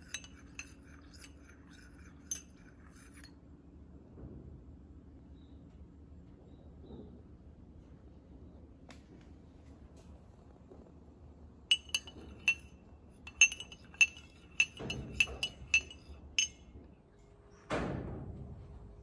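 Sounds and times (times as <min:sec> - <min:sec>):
spoon clinking against glass mug: 0:00.0 - 0:03.3, 0:11.7 - 0:12.7, 0:13.3 - 0:16.6.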